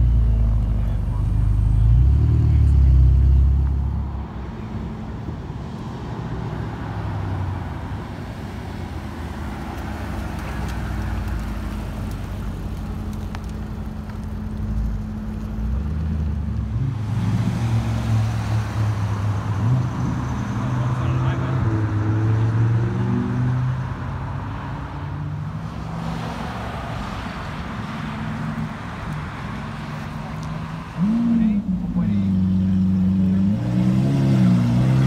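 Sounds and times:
car engines rolling past: 0.0s - 35.0s
road traffic noise: 0.0s - 35.0s
deep engine rumble: 8.6s - 17.8s.

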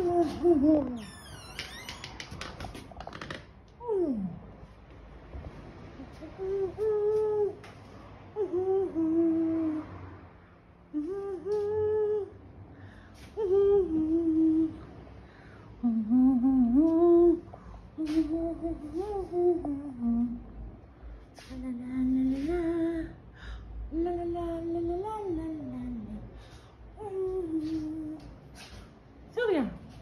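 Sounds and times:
person humming: 0.0s - 1.0s, 6.2s - 7.6s, 8.4s - 9.9s, 10.9s - 12.4s, 27.0s - 28.3s.

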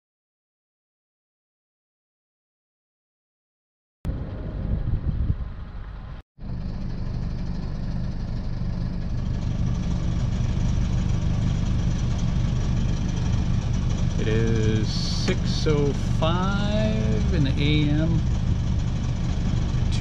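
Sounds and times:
diesel engine running: 4.1s - 20.0s.

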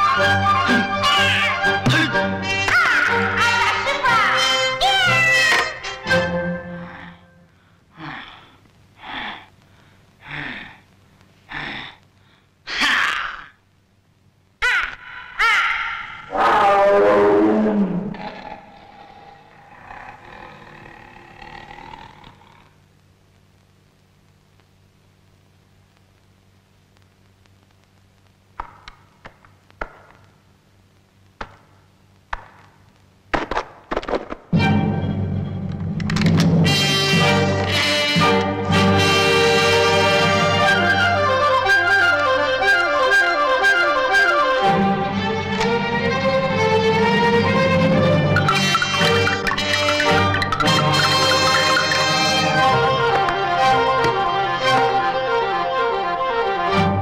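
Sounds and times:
faint low hum: 0.0s - 33.4s.

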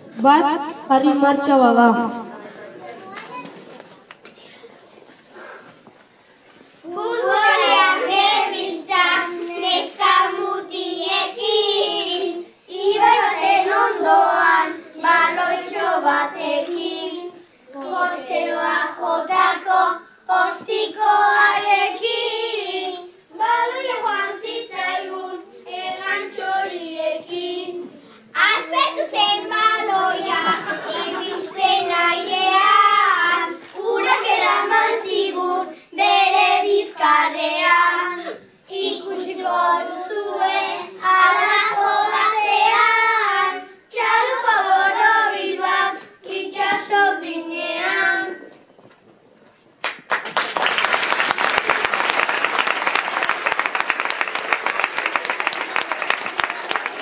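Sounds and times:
children singing together: 6.8s - 48.5s
audience applauding: 49.8s - 57.0s.

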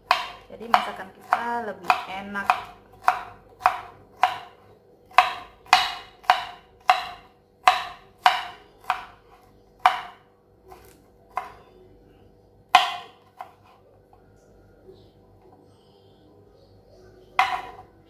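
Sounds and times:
knife chopping on wooden board: 0.0s - 9.2s, 9.8s - 11.6s, 12.7s - 13.7s, 17.4s - 17.9s.

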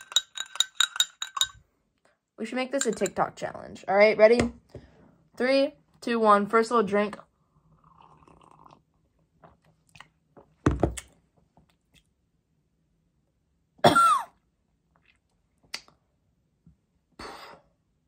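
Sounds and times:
woman clearing her throat: 13.8s - 14.4s
woman coughing: 13.8s - 14.4s.

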